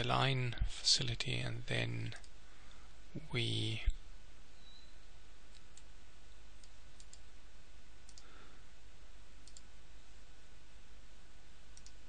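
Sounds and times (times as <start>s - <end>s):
low hum and hiss: 0.0s - 12.0s
computer mouse clicks: 6.6s - 7.3s, 8.1s - 8.3s, 9.4s - 9.7s, 11.8s - 12.0s.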